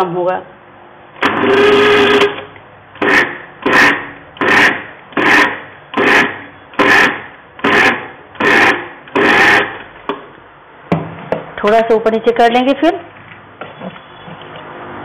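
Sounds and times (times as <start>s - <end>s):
mixer grinder pulsing: 1.2s - 10.0s.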